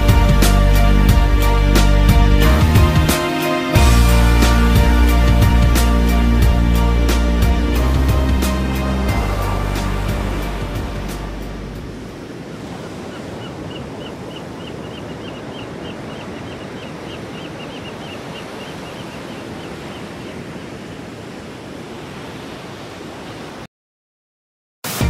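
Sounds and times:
background music: 0:00.0 - 0:12.3
small waves washing onto beach: 0:08.7 - 0:23.7.

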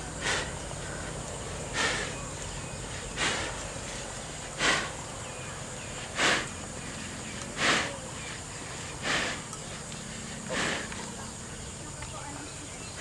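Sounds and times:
high insect drone: 0:00.0 - 0:13.0
animal breathing hard through nose: 0:00.1 - 0:05.2, 0:05.9 - 0:11.2.

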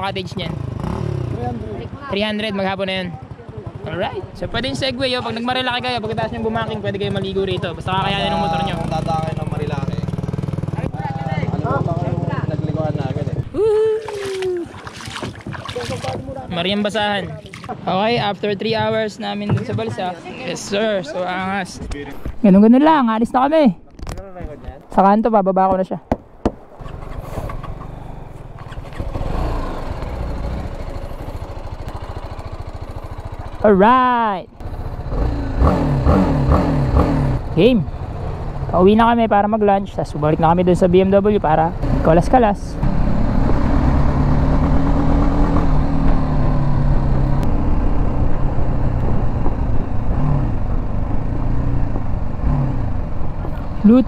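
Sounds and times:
motorcycle engine idling: 0:00.0 - 0:13.4, 0:27.6 - 0:35.5
motorcycle engine cruising: 0:00.0 - 0:22.4, 0:26.7 - 0:54.0.

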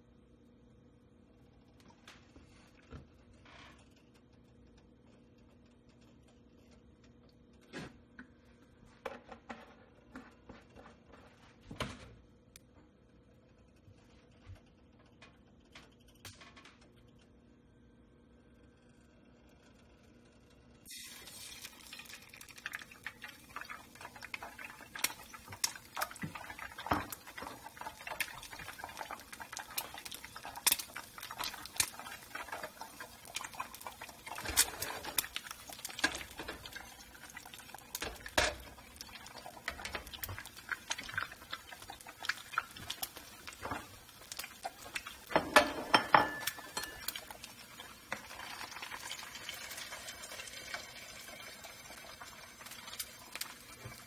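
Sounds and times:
eggs sizzling in hot oil: 0:20.8 - 0:54.0
oil popping and spattering: 0:20.9 - 0:45.4
knocks in frying pan: 0:45.3 - 0:47.1.

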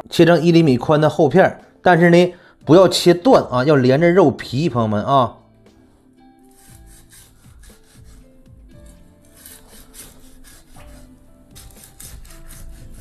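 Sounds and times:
quiet background music: 0:00.0 - 0:13.0
cleaver slicing on cutting board: 0:06.4 - 0:13.0.

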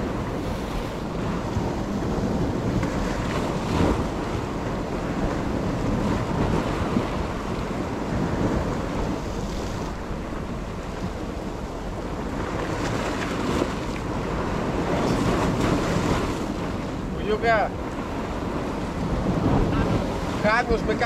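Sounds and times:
sea waves breaking on rocks: 0:00.0 - 0:21.0
wind buffeting microphone: 0:00.0 - 0:21.0.

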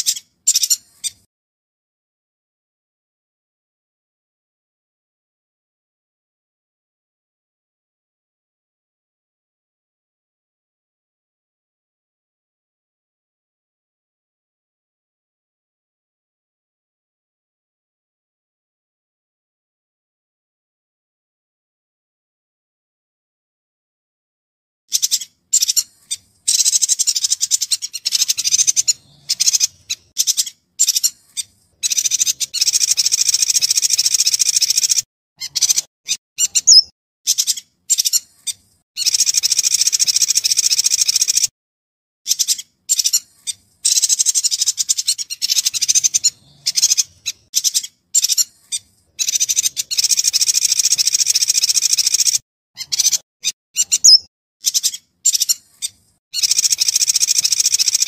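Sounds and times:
bird chattering song: 0:00.0 - 0:01.3, 0:24.9 - 0:41.5, 0:42.3 - 0:58.0.

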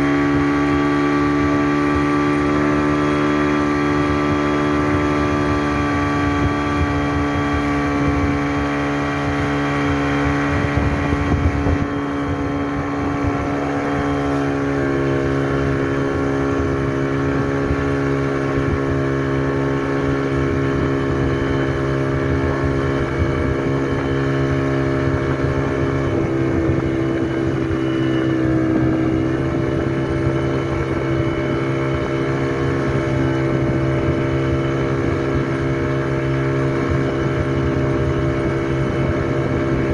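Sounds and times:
speedboat engine: 0:00.0 - 0:39.9.

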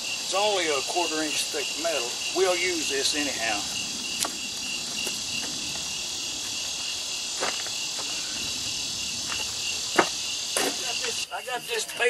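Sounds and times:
night insects shrilling and chirping: 0:00.0 - 0:12.0.

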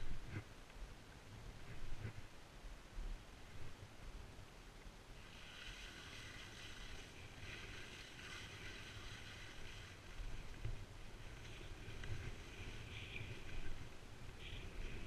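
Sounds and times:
wind rumbling on microphone: 0:00.0 - 0:15.0
skis sliding over snow: 0:05.2 - 0:15.0.

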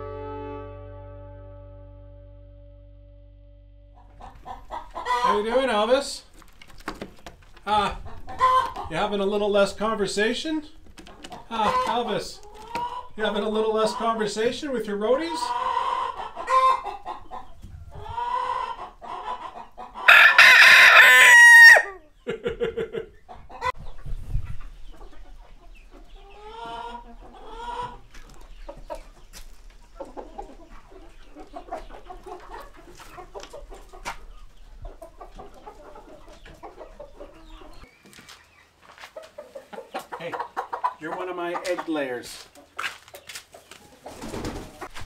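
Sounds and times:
hens clucking: 0:04.0 - 0:45.0
rooster crowing: 0:20.0 - 0:22.0.

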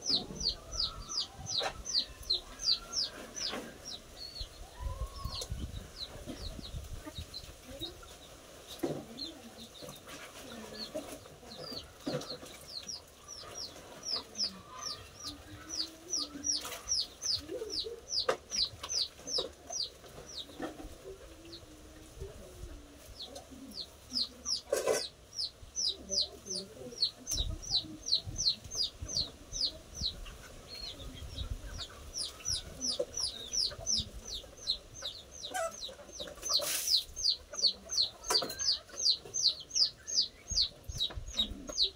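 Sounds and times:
chickens clucking: 0:00.0 - 0:41.9.

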